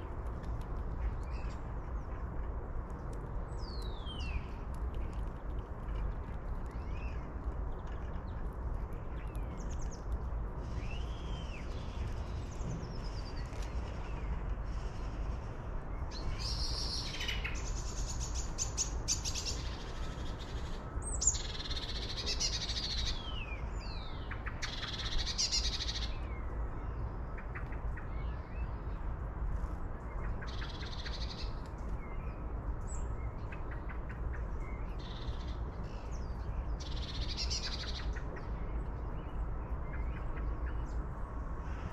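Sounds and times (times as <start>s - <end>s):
steady low rumble: 0.0s - 18.8s.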